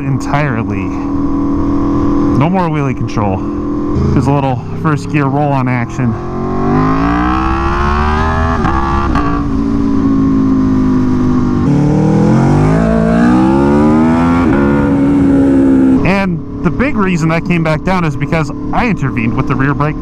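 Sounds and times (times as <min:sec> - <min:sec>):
motorcycle engine revving hard: 0:05.9 - 0:16.2.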